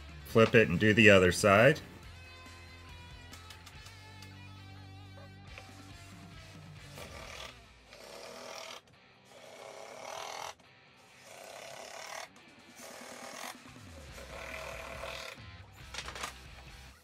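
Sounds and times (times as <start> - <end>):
guitar music: 0.0 - 7.9, 10.6 - 11.2
impact driver driving screws: 6.8 - 10.6.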